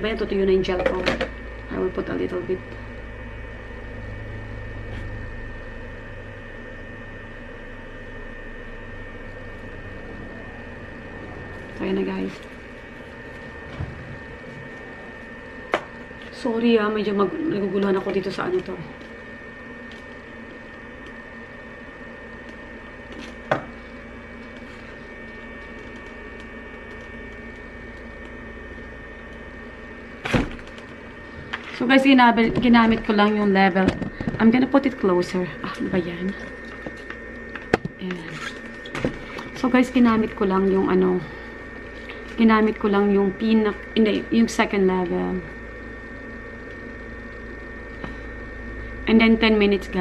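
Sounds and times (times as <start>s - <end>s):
machine humming with high whine: 0.0s - 50.0s.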